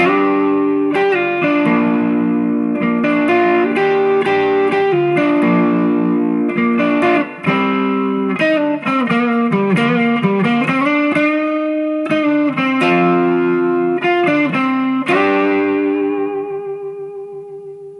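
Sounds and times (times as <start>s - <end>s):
electric guitar chords: 0.0s - 17.9s.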